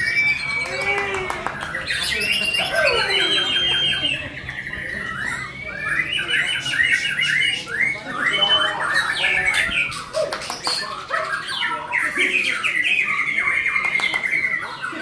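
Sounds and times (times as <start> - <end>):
bird singing varied whistles: 0.0 - 10.1.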